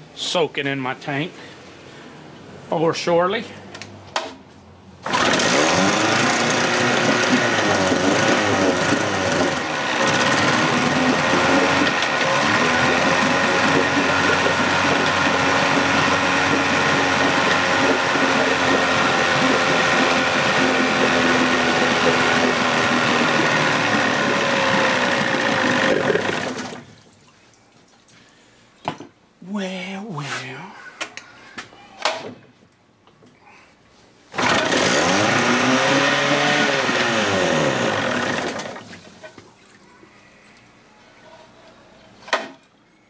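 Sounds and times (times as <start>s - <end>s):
outboard engine running: 5.1s - 26.9s, 34.4s - 38.8s.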